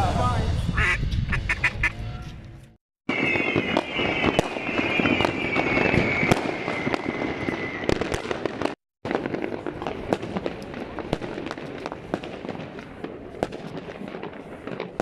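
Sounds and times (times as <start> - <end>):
falling firework whistle: 3.1 - 8.8
firecrackers banging: 3.1 - 15.0
fireworks crackling: 3.1 - 15.0.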